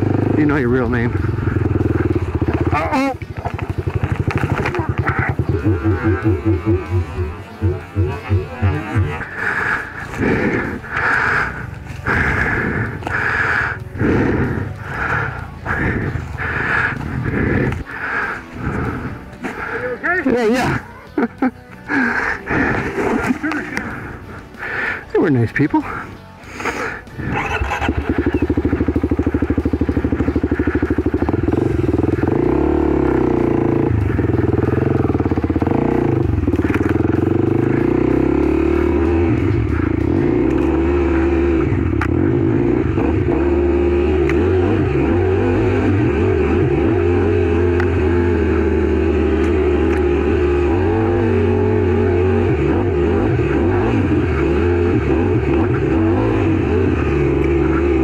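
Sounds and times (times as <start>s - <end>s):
dirt bike engine running: 0.0s - 25.0s, 26.6s - 58.0s.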